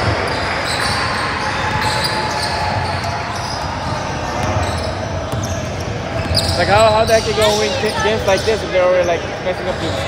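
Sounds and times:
basketball bouncing on court: 0.0 - 7.7
background chatter: 2.6 - 10.0.

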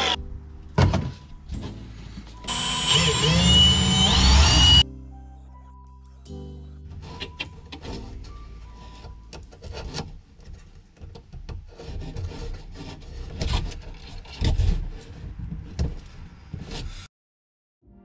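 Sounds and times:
hand tool scraping: 2.4 - 4.8, 11.6 - 15.4.

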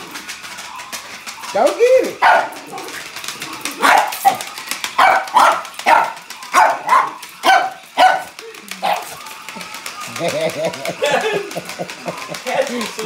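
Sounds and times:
small dog barking: 5.0 - 9.1.

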